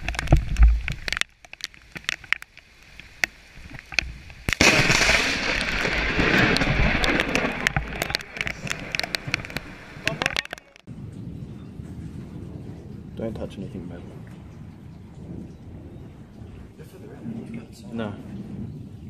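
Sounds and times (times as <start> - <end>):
ticks and thumps on microphone: 0.0 - 2.5, 5.6 - 10.9
thunder crack and rumble: 4.5 - 19.0.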